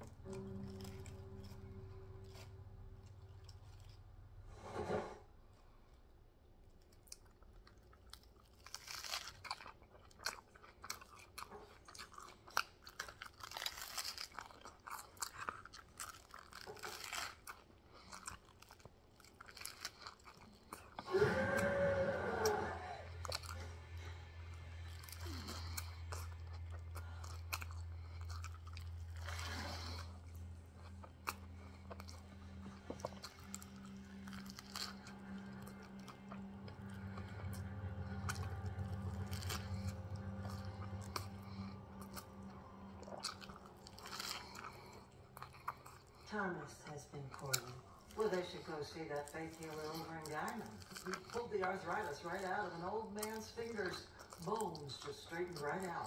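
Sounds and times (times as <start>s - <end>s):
chewing and crunching: 0.0s - 4.4s, 5.5s - 56.0s
steady low hum: 0.0s - 6.4s, 20.8s - 56.0s.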